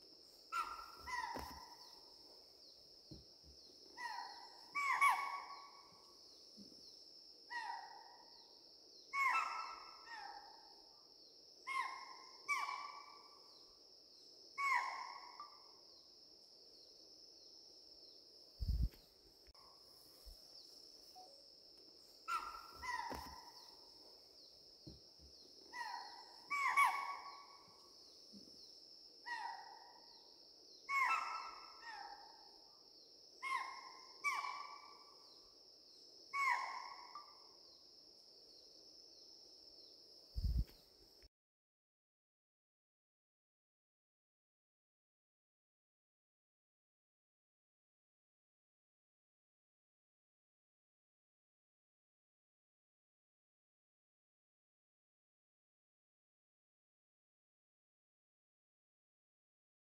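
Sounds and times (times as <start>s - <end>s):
high insect-like hum: 8.0s - 41.1s
short animal calls: 22.3s - 23.6s.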